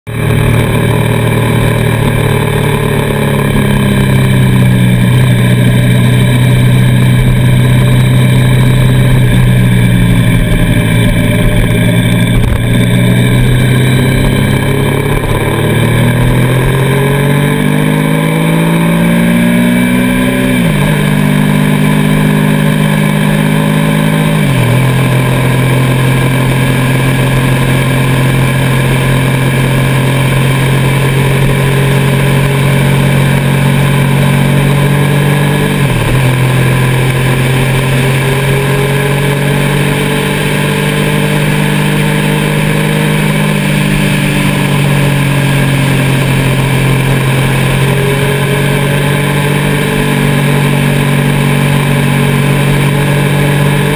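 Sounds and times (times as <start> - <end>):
vehicle engine running: 0.0 - 53.9.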